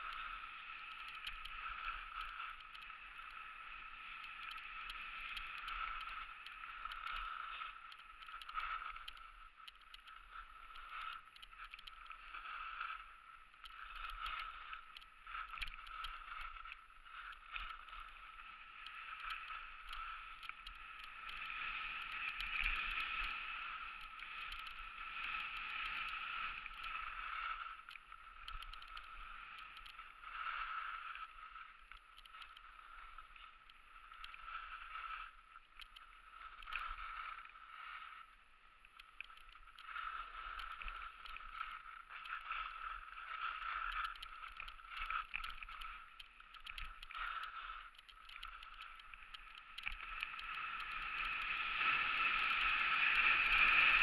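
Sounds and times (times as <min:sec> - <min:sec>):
skis swishing on snow: 0:00.1 - 0:02.2, 0:02.9 - 0:06.7, 0:47.1 - 0:54.0.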